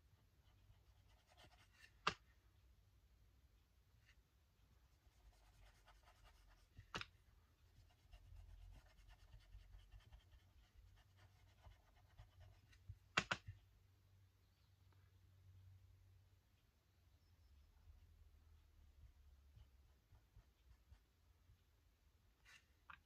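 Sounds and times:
colouring tool scratching paper: 0.8 - 2.0, 5.0 - 6.8, 7.7 - 12.8.

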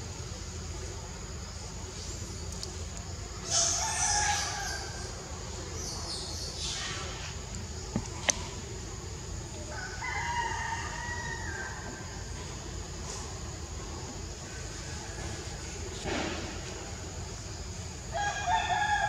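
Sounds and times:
rooster crowing: 9.7 - 11.9, 18.1 - 19.0.

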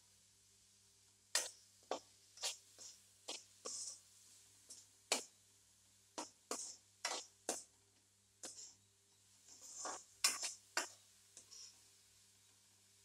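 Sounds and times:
metal spoon scraping a pan: 1.3 - 4.0, 6.2 - 7.7, 9.5 - 11.8.

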